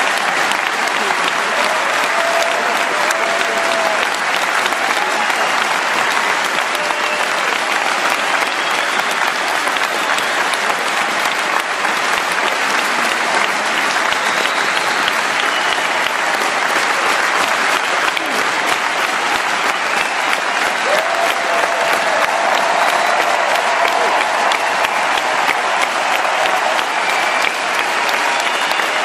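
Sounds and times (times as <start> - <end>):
crowd clapping and cheering: 0.0 - 29.0
whistles: 8.4 - 9.3, 9.9 - 10.6, 14.0 - 16.0, 19.7 - 20.4, 27.0 - 29.0.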